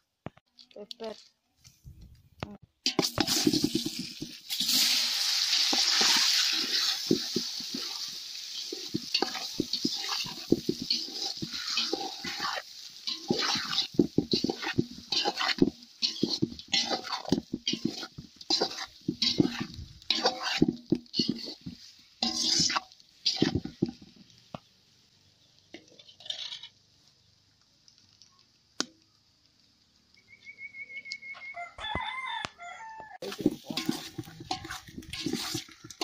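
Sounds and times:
spoon scraping steel pot: 5.7s - 24.0s, 25.8s - 26.8s, 33.2s - 36.0s.

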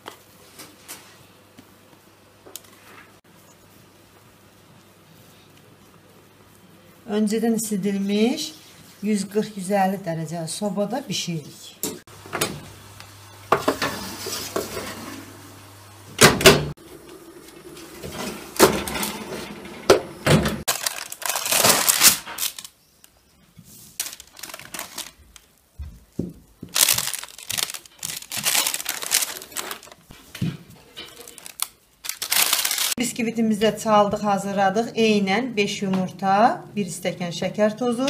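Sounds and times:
kitchen utensils clattering: 13.5s - 15.4s, 16.2s - 22.4s, 30.6s - 31.6s
baking paper rustling: 20.6s - 33.0s.

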